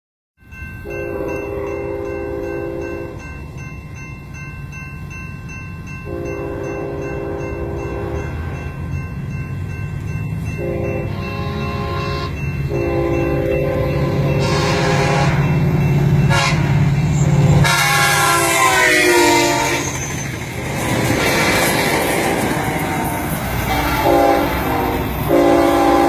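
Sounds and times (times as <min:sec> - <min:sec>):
crossing bell ringing: 0:00.4 - 0:26.0
low train rumble: 0:00.4 - 0:26.0
locomotive air horn blasts: 0:00.9 - 0:02.9, 0:06.1 - 0:08.4, 0:10.6 - 0:15.6, 0:16.2 - 0:17.0, 0:17.6 - 0:20.1, 0:23.6 - 0:26.0.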